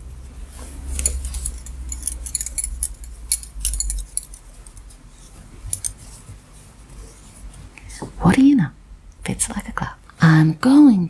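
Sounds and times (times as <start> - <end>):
knitting needles clicking: 5.7 - 6.1.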